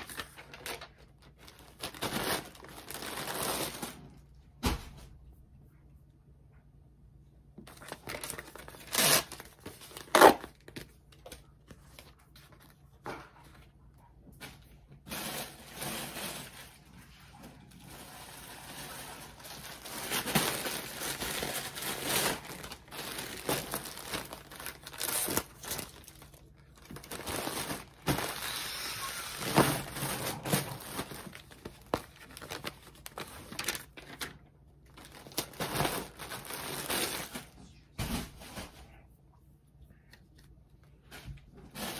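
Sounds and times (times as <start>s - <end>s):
plastic bags crinkling: 0.0s - 4.1s, 7.7s - 12.7s, 15.1s - 37.6s.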